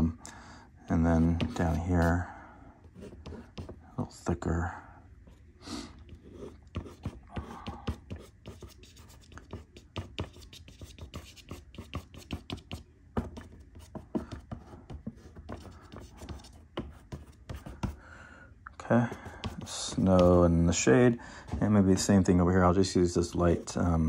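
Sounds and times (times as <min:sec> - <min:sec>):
pastel scratching on paper: 0:01.2 - 0:02.1, 0:02.9 - 0:03.8, 0:06.1 - 0:18.0, 0:19.1 - 0:20.5.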